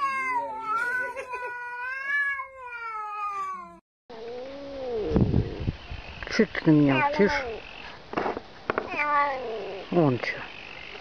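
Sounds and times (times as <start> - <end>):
cat meowing: 0.0 - 3.8, 8.8 - 9.8.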